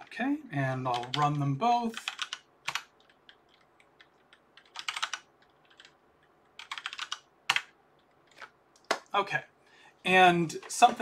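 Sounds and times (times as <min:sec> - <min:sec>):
typing on computer keyboard: 0:00.9 - 0:01.4, 0:02.0 - 0:09.1.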